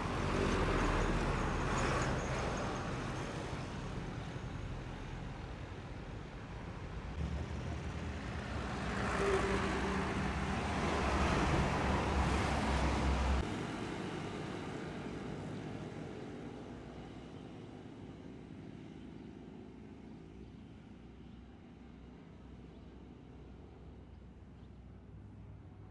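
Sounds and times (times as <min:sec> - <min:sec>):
diesel truck passing: 0:00.0 - 0:05.3, 0:06.8 - 0:15.3
road traffic: 0:00.0 - 0:25.9.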